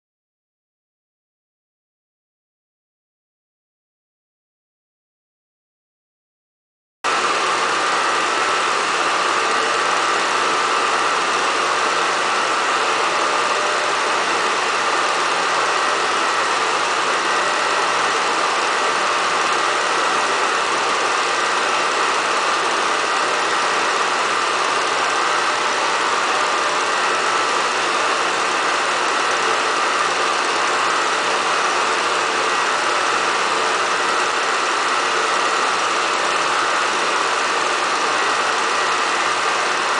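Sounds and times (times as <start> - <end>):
film projector whirring: 7.1 - 39.9.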